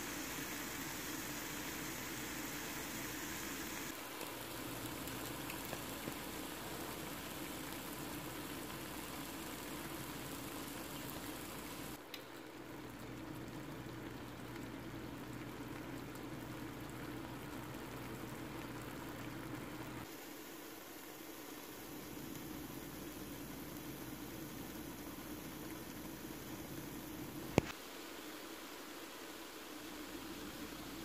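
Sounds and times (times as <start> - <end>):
food sizzling in a pan: 0.0 - 12.0, 16.8 - 31.0.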